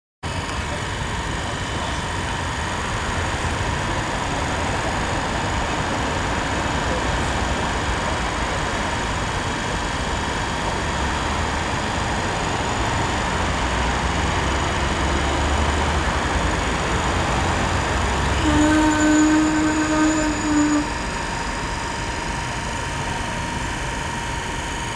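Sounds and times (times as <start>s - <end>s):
horn blast: 17.6s - 23.3s.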